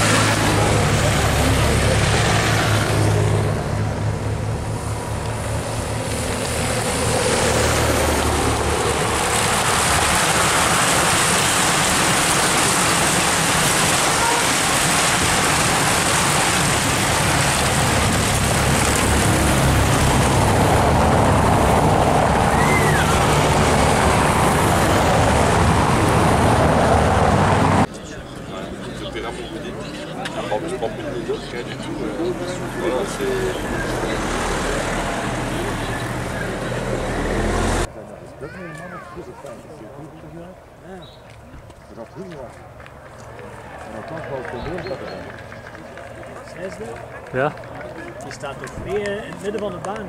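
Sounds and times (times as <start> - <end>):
motorbike and car engines: 0.0 - 50.0
bicycles rattling over cobbles: 5.4 - 20.8, 42.0 - 50.0.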